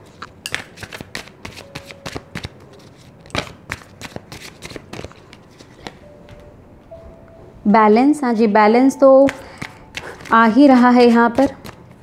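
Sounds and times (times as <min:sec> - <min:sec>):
cards being shuffled: 0:00.2 - 0:06.0, 0:09.3 - 0:10.6.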